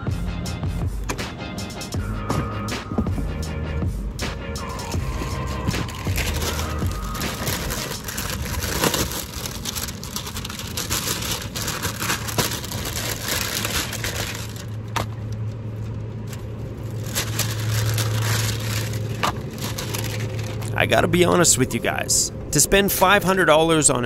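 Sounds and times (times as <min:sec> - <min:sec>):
low hum: 0:00.1 - 0:24.0
plastic bag rustling: 0:04.7 - 0:21.0.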